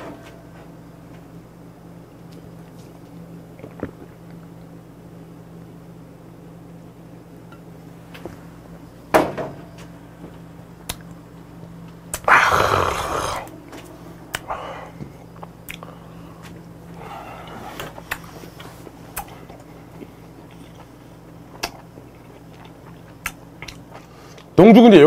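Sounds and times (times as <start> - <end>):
man exhaling raspily: 12.2 - 13.5.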